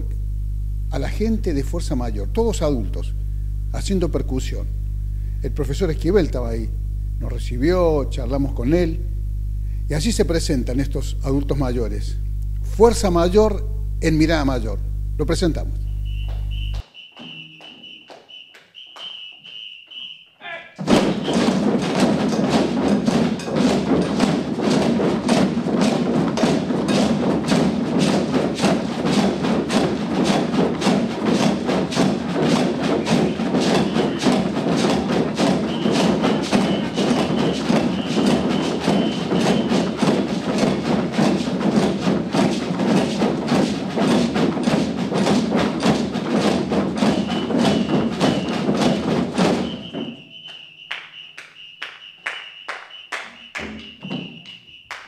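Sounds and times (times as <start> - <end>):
drum circle playing: 12.8 - 20.2, 20.8 - 55.0
held whistle: 15.8 - 21.5, 33.0 - 34.5, 35.3 - 40.0, 47.0 - 48.8, 49.4 - 55.0
shakers: 20.8 - 55.0.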